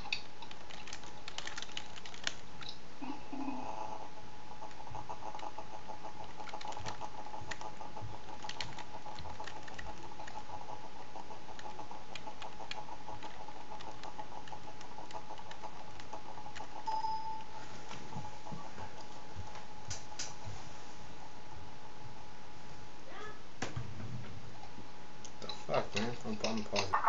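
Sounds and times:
keyboard typing: 0.0 - 2.8, 4.6 - 17.5
faint steady tone: 16.8 - 17.7.

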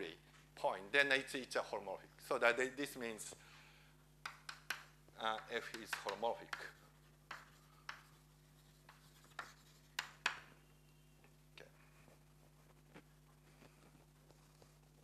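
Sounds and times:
low room hum: 0.0 - 15.0
chalk tapping on blackboard: 4.2 - 10.5.

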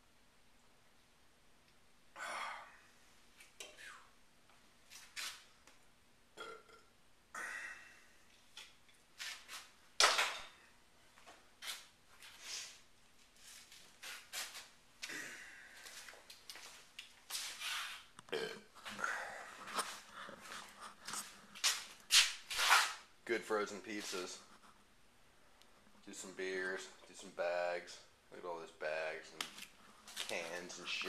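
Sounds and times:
man belching: 6.4 - 8.0, 18.3 - 19.0.

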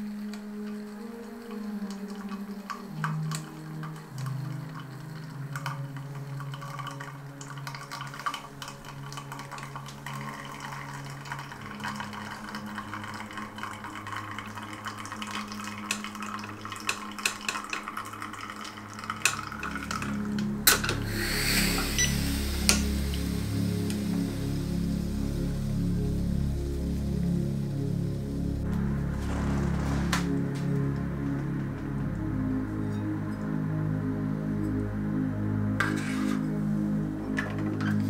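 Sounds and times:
quiet ambient background music: 0.0 - 38.0
espresso trickling into glass: 4.2 - 23.3
burst of noise: 20.7 - 31.0.

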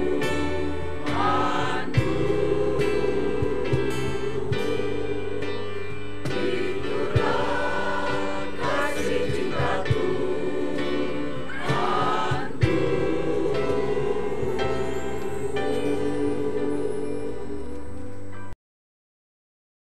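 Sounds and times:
choir singing a hymn: 0.0 - 18.6.

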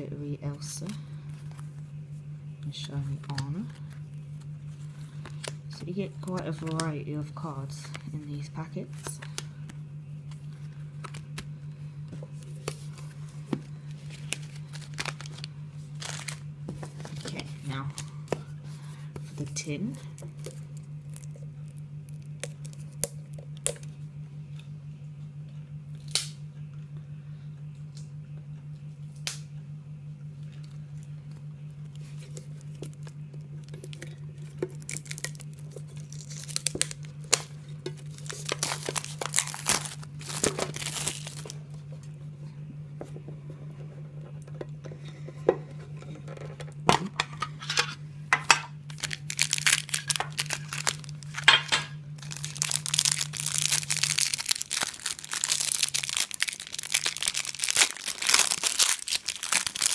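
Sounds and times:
steady low hum: 0.0 - 59.9
plastic wrap crinkling and tearing: 12.4 - 18.1, 19.4 - 23.9, 31.9 - 41.6, 48.9 - 59.9.

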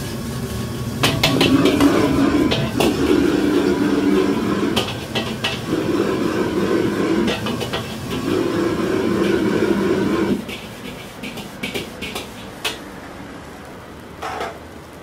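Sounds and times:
wok grinding on burner: 0.0 - 15.0
ladle clanking on wok: 1.0 - 12.9.

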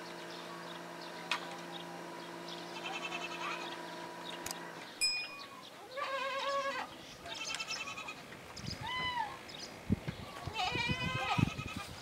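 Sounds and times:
cranes trumpeting calls: 2.7 - 3.9.

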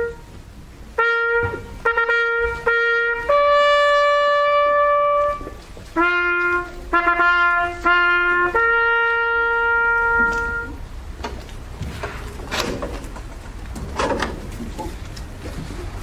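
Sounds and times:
solo trumpet slow call: 0.0 - 10.9.

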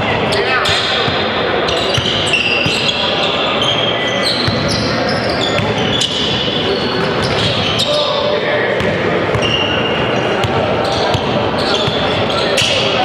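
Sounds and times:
crowd and player voices: 0.0 - 13.0
sneakers squeaking: 0.0 - 13.0.

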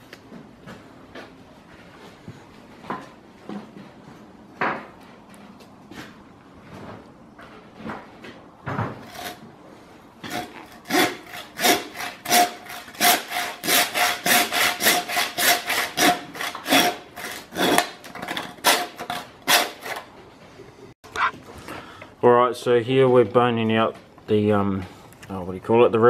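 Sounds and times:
hand saw cutting bone: 9.0 - 9.4, 10.2 - 20.1.

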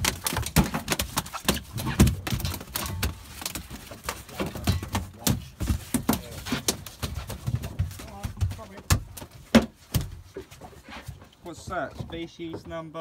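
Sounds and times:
fish slapping on wet deck: 0.0 - 4.2.

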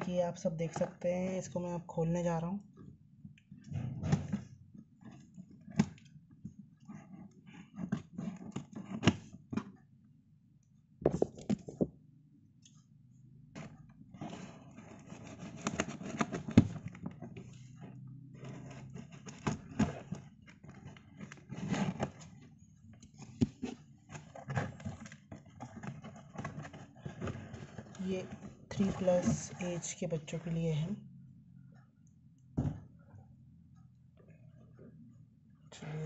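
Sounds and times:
cardboard flaps rustling and scraping: 13.6 - 22.4, 23.1 - 29.6.

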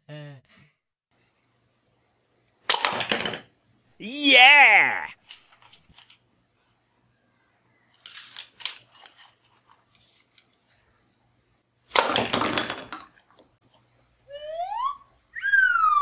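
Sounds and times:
toy pistol firing: 2.7 - 3.2
plastic clicks of toy pistol loading: 8.0 - 9.2.

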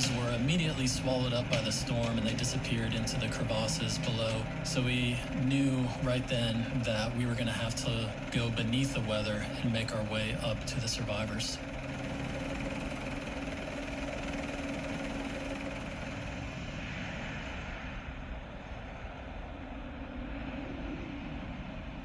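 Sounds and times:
helicopter running: 0.0 - 21.9
stormy wind: 16.0 - 22.0.

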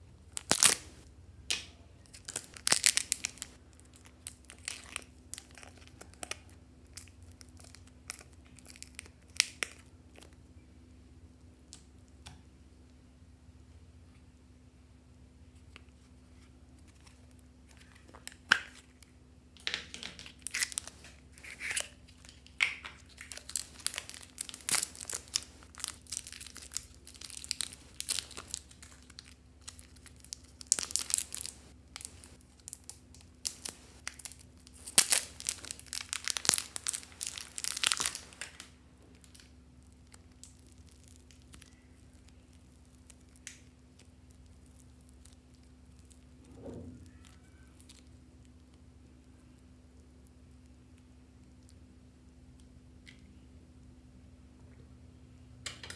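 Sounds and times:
plastic wrapper crinkling and tearing: 0.3 - 1.0, 2.0 - 10.4, 16.3 - 51.8.

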